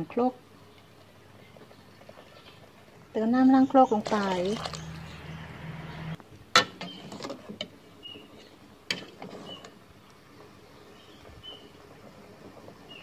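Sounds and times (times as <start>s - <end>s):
water pouring into a pot: 4.0s - 5.2s.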